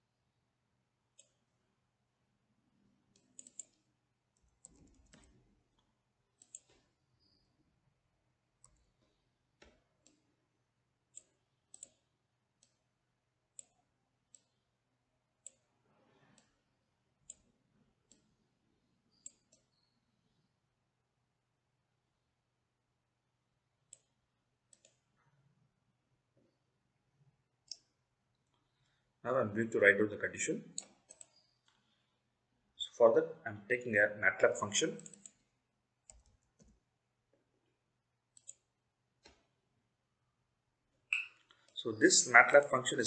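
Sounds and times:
computer mouse clicks: 0:01.2 - 0:01.4, 0:03.1 - 0:07.4, 0:08.6 - 0:10.2, 0:11.1 - 0:12.8, 0:13.5 - 0:14.6, 0:15.4 - 0:15.7, 0:16.3 - 0:16.6, 0:17.2 - 0:18.4, 0:19.1 - 0:20.0, 0:23.9 - 0:25.1, 0:27.6 - 0:28.9, 0:30.7 - 0:32.0, 0:35.0 - 0:36.8, 0:38.3 - 0:39.5.

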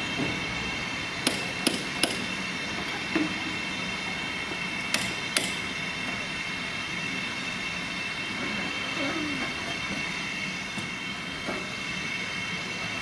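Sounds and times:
steam hissing: 0:00.0 - 0:13.0
sharp metal-on-metal knocks: 0:01.2 - 0:02.3, 0:04.9 - 0:05.6.

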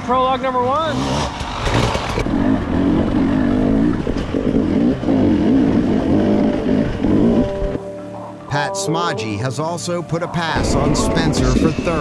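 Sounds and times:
dirt bike engine revving: 0:00.6 - 0:07.8.

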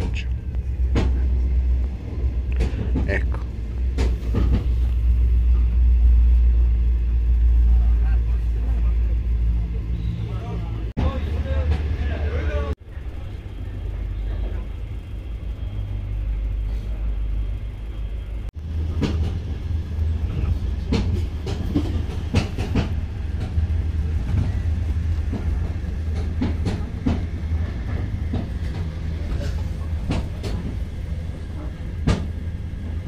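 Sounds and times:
train clacks and knocks: 0:00.0 - 0:10.2, 0:11.0 - 0:33.0
train rumble inside carriage: 0:00.0 - 0:33.0.

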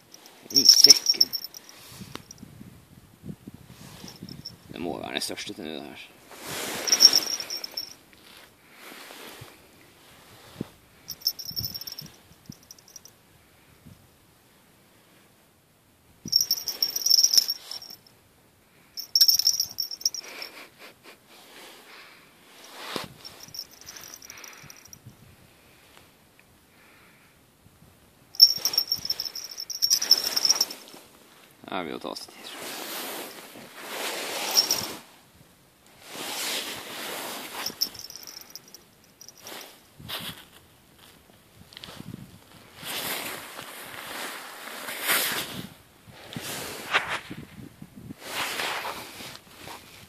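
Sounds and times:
bite alarm bells jingling: 0:00.0 - 0:01.8, 0:06.9 - 0:08.0, 0:11.1 - 0:13.1, 0:16.3 - 0:18.0, 0:19.0 - 0:20.6, 0:23.2 - 0:25.0, 0:28.4 - 0:30.8, 0:34.5 - 0:35.0, 0:37.6 - 0:39.6.

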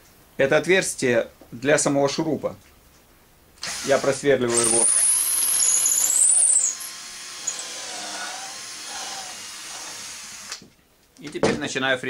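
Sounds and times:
electric drill boring wood: 0:03.6 - 0:10.6.

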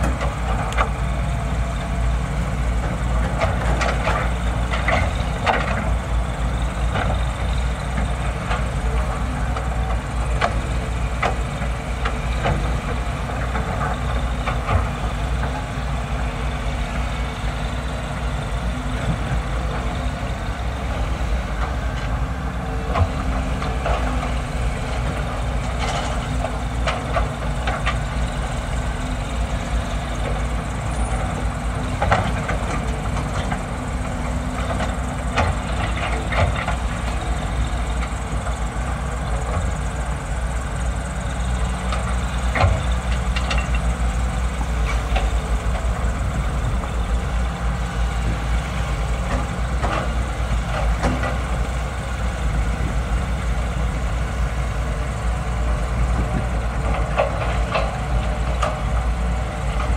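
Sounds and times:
excavator diesel engines running: 0:00.0 - 0:59.9.

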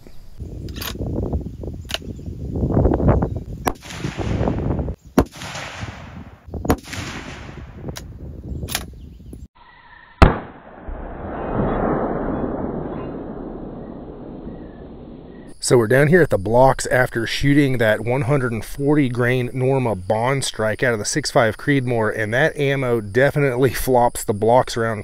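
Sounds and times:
rifle shots cracking: 0:03.7 - 0:07.7, 0:10.2 - 0:15.3
rolling rumble: 0:10.7 - 0:19.6.

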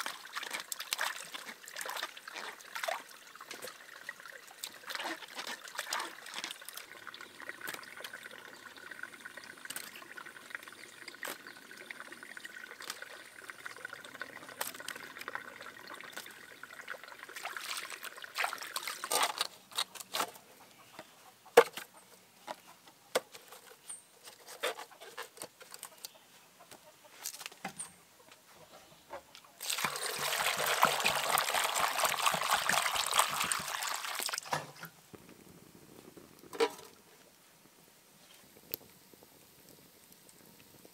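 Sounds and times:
water trickling and pouring: 0:00.0 - 0:19.9, 0:29.6 - 0:35.3.

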